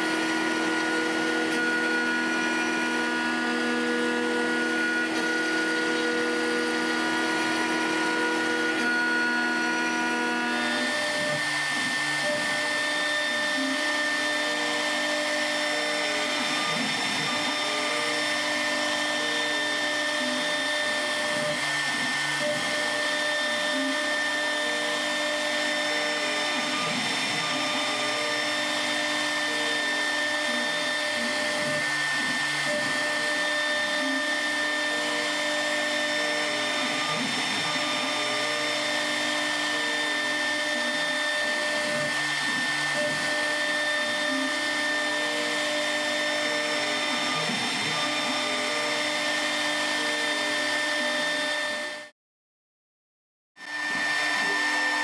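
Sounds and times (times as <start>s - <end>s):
router spindle whining: 0.0s - 52.1s, 53.6s - 55.0s
machine motor tones stepping: 10.0s - 51.3s.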